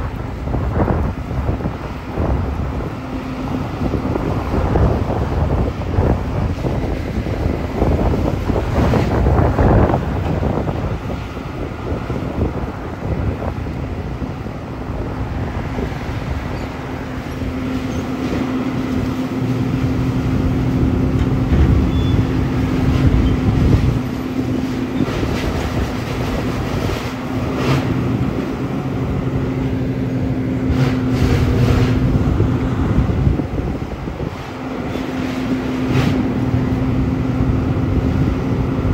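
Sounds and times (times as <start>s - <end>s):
excavator rumble: 0.0s - 38.9s
heavy machinery engines running: 0.0s - 38.9s.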